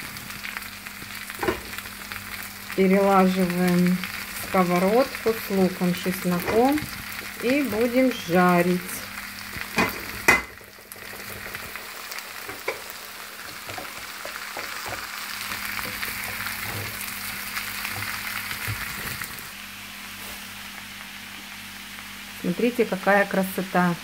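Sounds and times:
leaves sizzling in oil: 0:00.0 - 0:24.0
wooden spatula scraping pan: 0:15.8 - 0:17.0.

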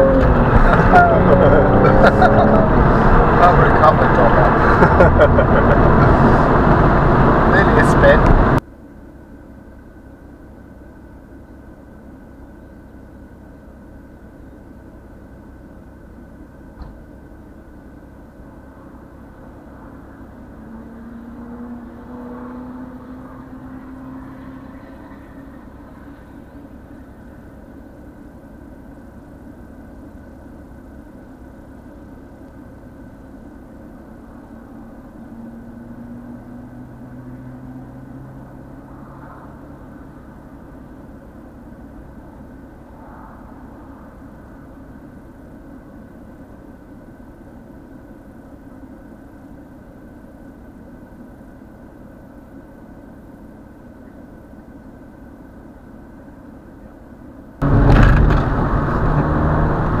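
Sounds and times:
engine note rising in pitch: 0:00.0 - 0:08.6, 0:57.6 - 1:00.0
car engine idling: 0:00.0 - 0:20.6, 0:24.7 - 0:35.6, 0:39.6 - 1:00.0.

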